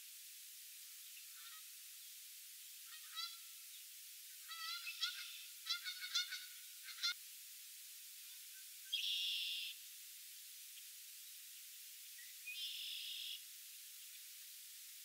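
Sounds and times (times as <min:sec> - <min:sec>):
geese honking: 0:02.9 - 0:03.5, 0:04.4 - 0:07.2.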